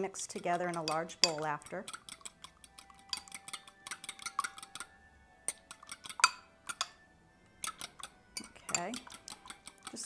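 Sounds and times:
fork clinking against glass bowl: 0.3s - 4.9s, 5.5s - 7.0s, 7.6s - 10.0s.

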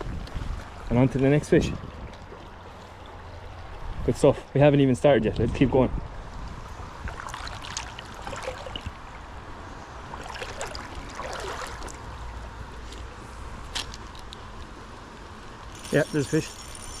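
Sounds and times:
river water running over stones: 6.9s - 9.3s, 10.1s - 12.9s
small splashes: 7.0s - 9.2s, 10.0s - 12.4s.

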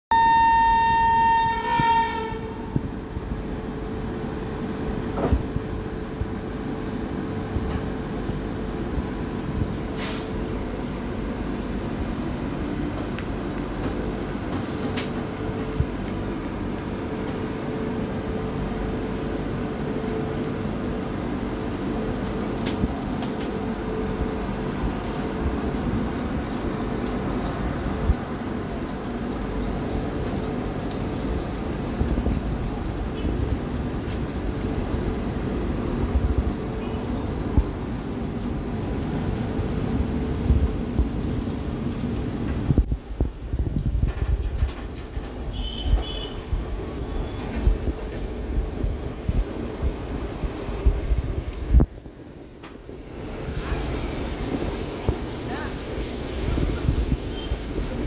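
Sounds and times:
locomotive horn: 0.1s - 2.8s, 45.5s - 46.5s
train coaches rolling rumble: 0.1s - 58.0s.

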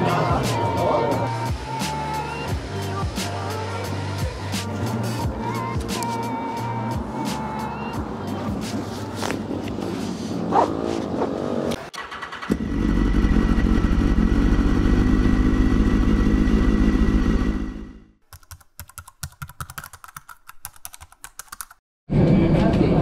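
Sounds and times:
motorcycle engine revving high: 11.3s - 18.2s
keyboard typing clicks: 18.3s - 21.8s.

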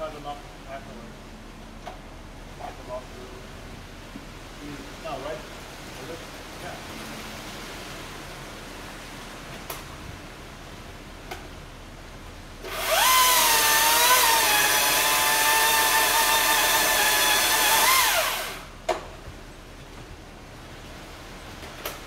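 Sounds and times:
chainsaw cutting a tree limb: 12.6s - 18.7s.

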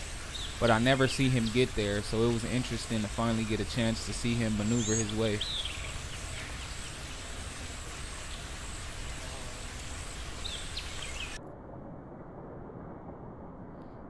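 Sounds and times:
background hiss: 0.0s - 11.4s.

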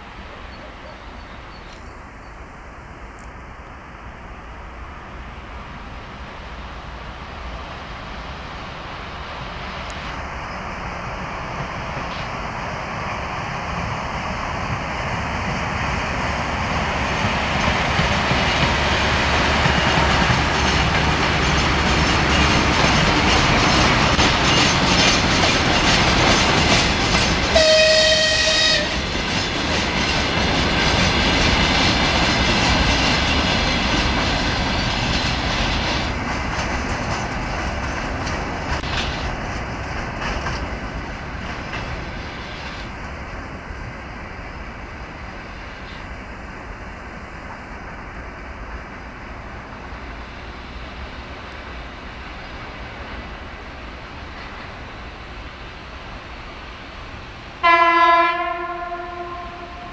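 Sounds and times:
diesel locomotive engine: 0.0s - 59.9s
wagon wheels clickety-clack: 17.2s - 27.6s, 29.2s - 40.8s
locomotive horn blast: 27.6s - 29.0s, 57.6s - 59.9s.

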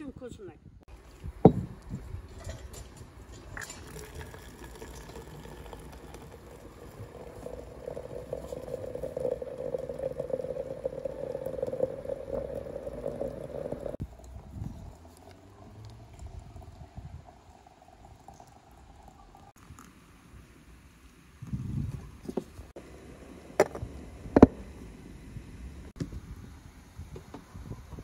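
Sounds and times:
hot water filling teapot: 3.3s - 14.0s, 16.2s - 19.9s.

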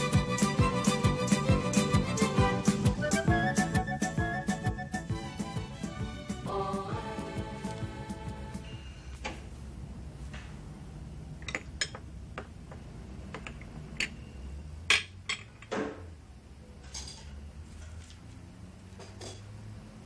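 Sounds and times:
music cue: 0.0s - 8.9s
dishes and pans clinking: 16.8s - 17.4s, 19.0s - 19.6s.

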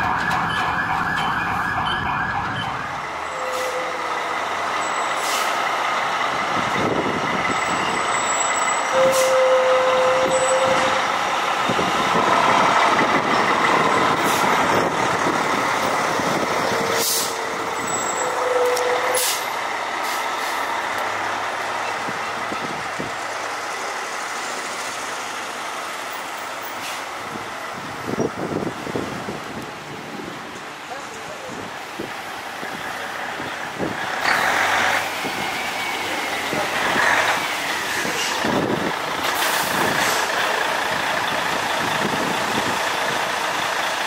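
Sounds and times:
fire engine driving past: 0.0s - 44.0s
air brakes hissing: 3.3s - 4.0s, 4.9s - 5.7s, 8.9s - 9.7s, 16.8s - 20.7s, 26.7s - 27.2s, 39.4s - 40.4s.

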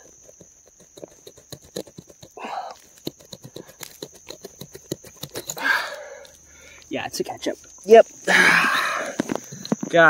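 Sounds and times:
hand scratching gravelly dirt: 0.0s - 6.4s.

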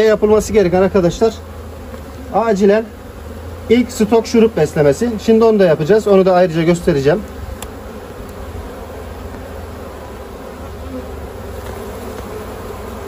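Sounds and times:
bees buzzing in a hive: 0.0s - 13.0s.

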